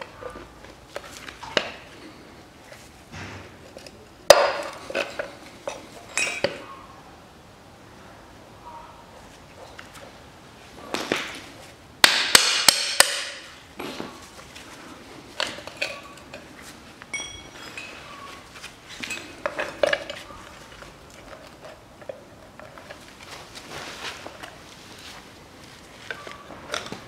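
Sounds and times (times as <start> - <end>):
metallic ring: 17.1 - 18.1.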